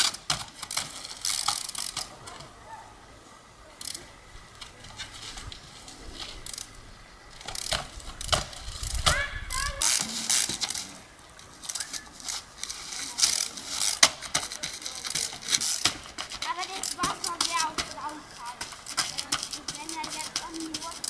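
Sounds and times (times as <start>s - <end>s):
freewheel hub ratcheting clicks: 0.0s - 2.1s, 3.8s - 4.7s, 6.4s - 9.1s
bike tyres knocking on stone: 13.9s - 21.0s.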